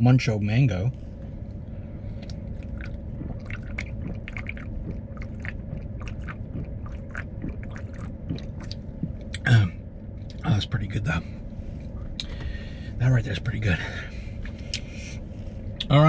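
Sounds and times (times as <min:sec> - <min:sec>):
low cabin hum: 0:00.0 - 0:16.0
swallowing clicks: 0:02.2 - 0:09.6, 0:12.2 - 0:12.5
man gulping a drink: 0:02.2 - 0:10.4.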